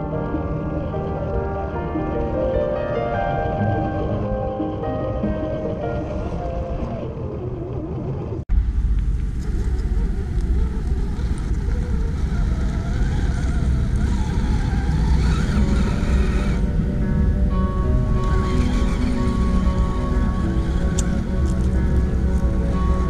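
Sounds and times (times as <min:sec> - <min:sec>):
background music: 0:00.0 - 0:23.0
steady low rumble: 0:00.0 - 0:23.0
electric motor whining: 0:09.4 - 0:23.0.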